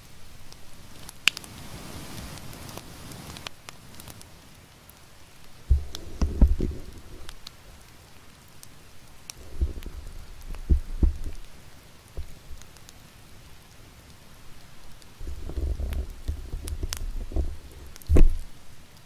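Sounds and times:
campfire crackling and popping: 0:00.0 - 0:19.0
dull low thumps: 0:05.7 - 0:07.5, 0:09.4 - 0:11.6, 0:15.2 - 0:18.6.

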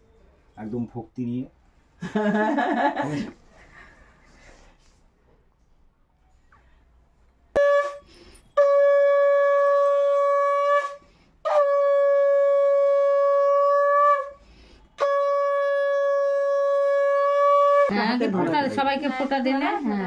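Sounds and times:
conch shell blasts: 0:07.6 - 0:17.9.

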